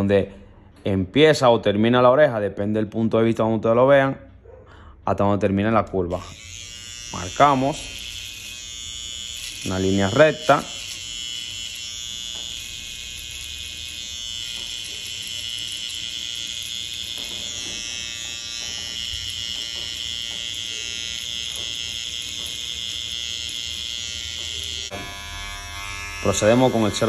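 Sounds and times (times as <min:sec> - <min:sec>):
hair trimmer whining: 0:05.9 - 0:27.0.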